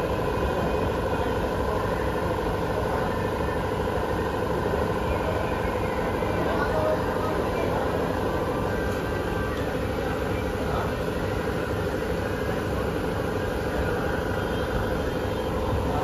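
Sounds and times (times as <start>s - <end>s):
electric train humming: 0.0s - 16.0s.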